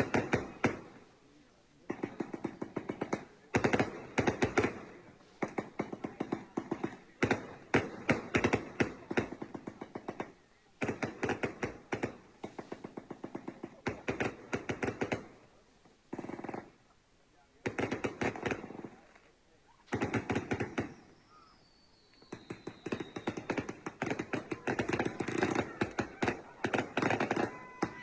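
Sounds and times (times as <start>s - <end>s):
firecrackers popping: 1.8s - 15.4s, 19.9s - 21.2s, 22.0s - 28.0s.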